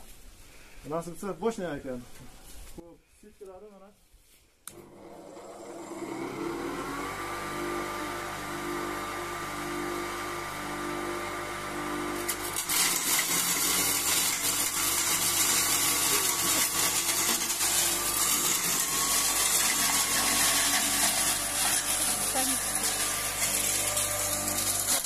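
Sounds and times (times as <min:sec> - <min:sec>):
crusher motor humming: 0:04.7 - 0:25.0
straw being shredded: 0:12.1 - 0:25.0.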